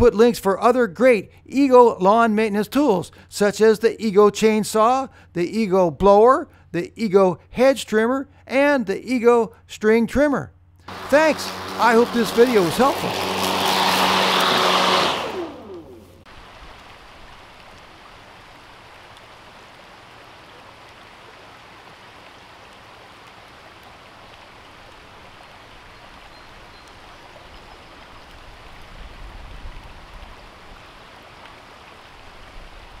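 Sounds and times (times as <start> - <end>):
stream rushing over stones: 10.9 - 15.6, 16.2 - 29.0, 29.7 - 33.0.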